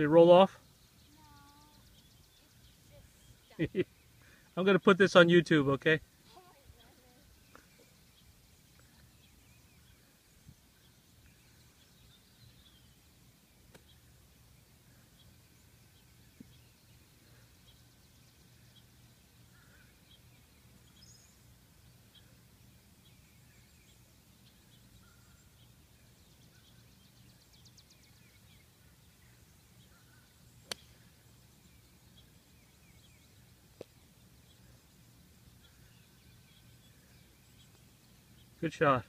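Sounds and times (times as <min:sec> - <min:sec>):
faint bird chirps: 0:00.0 - 0:04.6, 0:05.8 - 0:39.0
golf club striking ball: 0:30.6 - 0:31.0.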